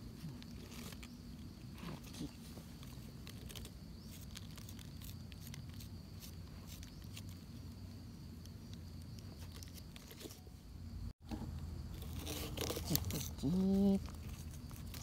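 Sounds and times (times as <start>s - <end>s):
knife scraping mushroom stem: 11.9s - 15.0s.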